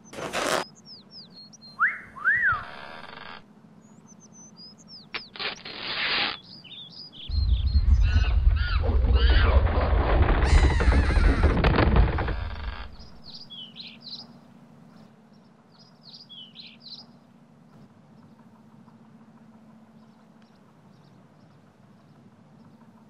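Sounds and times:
rising and falling whistles: 1.8s - 2.7s
loud dense rumble: 7.3s - 13.4s.

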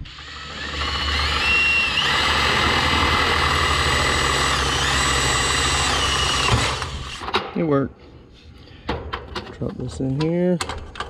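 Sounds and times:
cordless drill boring sheet metal: 0.0s - 7.3s.

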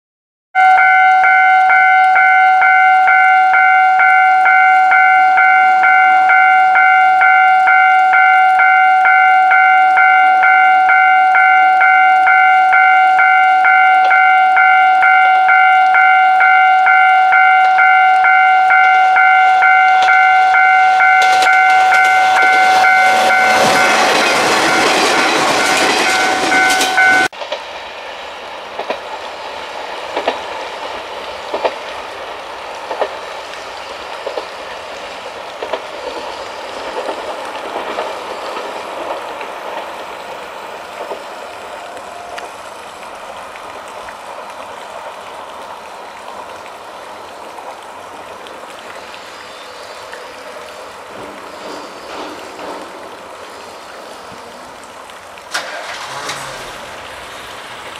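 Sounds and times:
level crossing bell ringing: 0.6s - 27.3s
diesel railcar passing: 0.6s - 57.9s.

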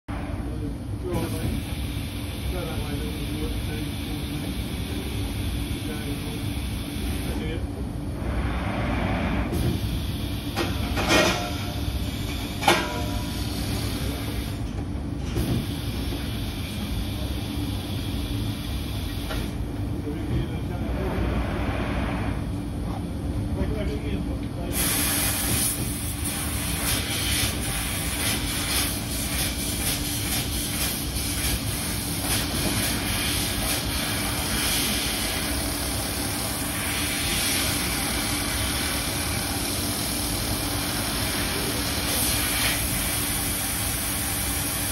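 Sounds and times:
laser cutter running: 0.1s - 44.9s
laser cutter hum: 24.8s - 44.9s.

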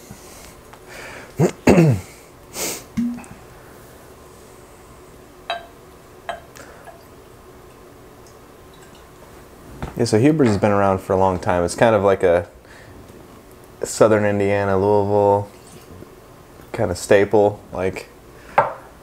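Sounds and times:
breathy sniff: 2.0s - 3.0s
glass clinking: 5.5s - 7.1s.

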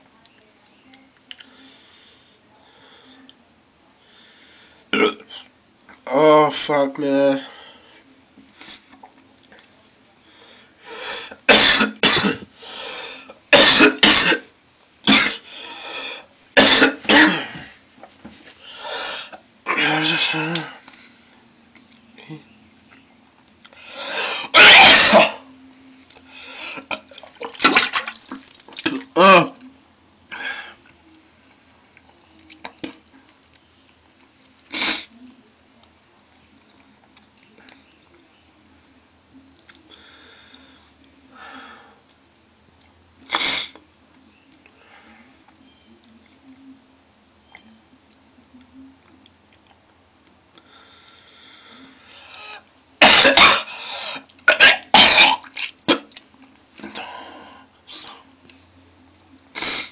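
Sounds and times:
man retching and coughing: 5.0s - 5.3s, 11.4s - 12.5s, 13.5s - 14.5s, 15.1s - 15.4s, 16.6s - 17.6s, 19.7s - 20.8s, 24.3s - 25.4s, 28.8s - 29.6s, 53.0s - 56.1s.

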